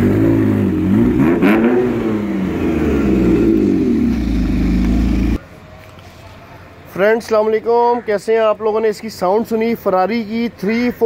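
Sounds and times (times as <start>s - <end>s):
car engine revving: 0.0s - 5.4s.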